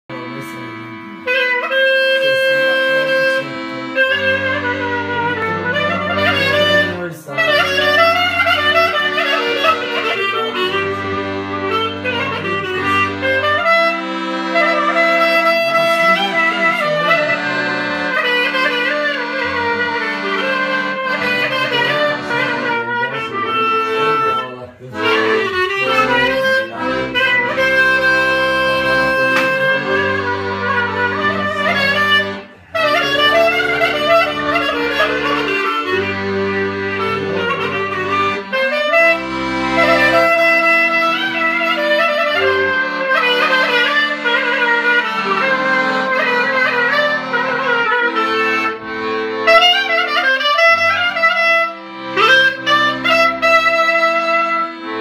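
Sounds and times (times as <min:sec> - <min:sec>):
accordion chords: 0:00.0 - 0:55.0
clarinet melody: 0:00.0 - 0:55.0
sustained bass notes: 0:00.1 - 0:55.0.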